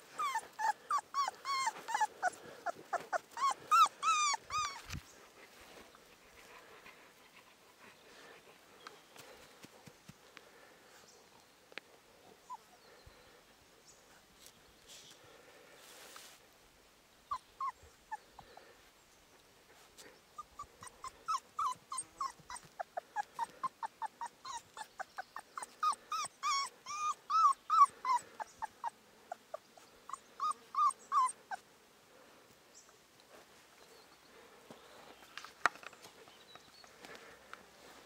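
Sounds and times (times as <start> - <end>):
puppy whimpering: 0.0 - 5.0, 17.3 - 18.7, 20.4 - 31.6.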